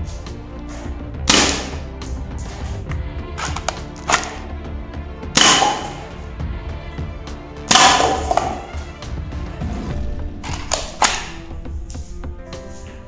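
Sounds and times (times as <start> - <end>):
background music: 0.0 - 13.0
toy shotgun firing bursts: 1.3 - 1.8, 5.4 - 6.0.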